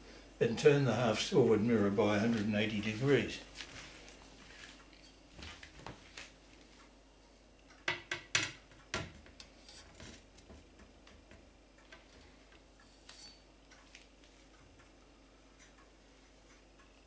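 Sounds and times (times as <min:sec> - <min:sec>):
faint metal ticks: 0:10.7 - 0:17.0.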